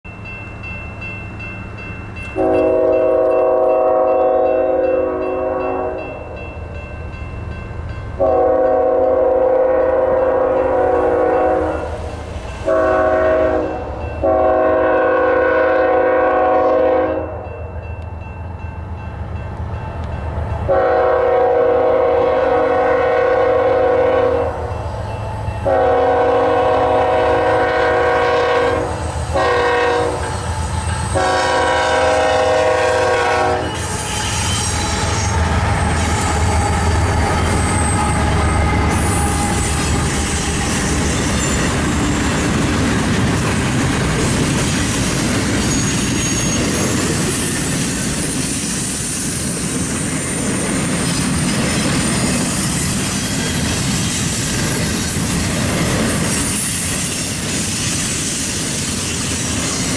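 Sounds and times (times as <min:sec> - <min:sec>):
locomotive air horn blasts: 0:02.4 - 0:06.1, 0:08.2 - 0:17.4, 0:20.7 - 0:24.6, 0:25.6 - 0:30.5, 0:31.1 - 0:36.2
low locomotive rumble: 0:17.8 - 0:45.7.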